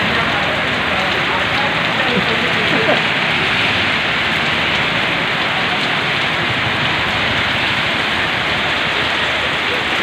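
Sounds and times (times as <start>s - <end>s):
heavy rain on street and roof: 0.0s - 10.0s
water streaming off roof: 0.0s - 10.0s.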